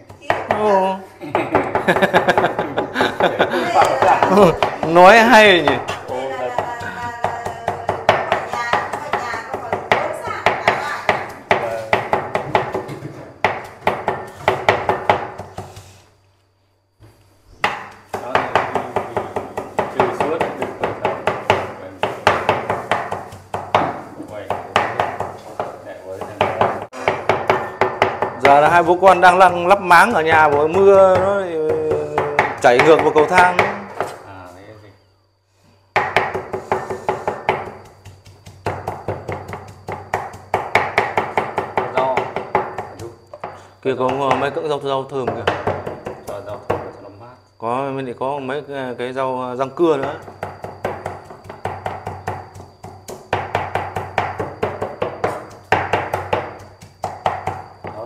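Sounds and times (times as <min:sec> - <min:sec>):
cleaver chopping on wooden block: 0:17.6 - 0:25.4, 0:36.0 - 0:44.5, 0:50.1 - 0:58.0.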